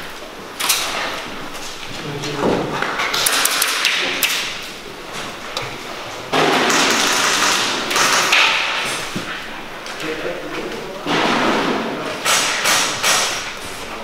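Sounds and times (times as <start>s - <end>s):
footsteps: 5.0s - 12.2s.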